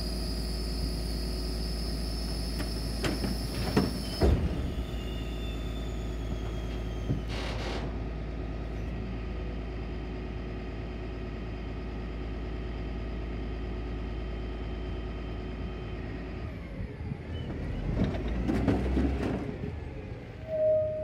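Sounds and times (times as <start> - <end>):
truck engine drone with whine: 0.0 - 21.0
truck knocking while moving: 6.3 - 8.1, 17.8 - 19.6.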